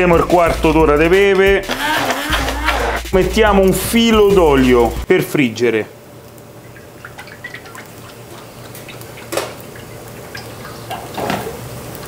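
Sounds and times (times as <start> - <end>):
oil trickling into pan: 6.2 - 12.0.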